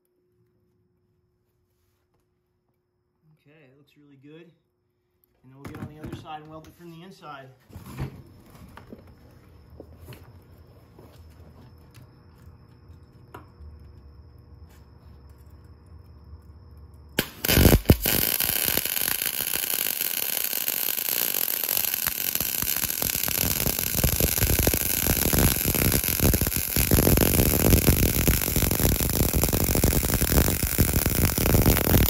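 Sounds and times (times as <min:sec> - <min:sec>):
welding arc crackling: 0:17.2 - 0:32.0.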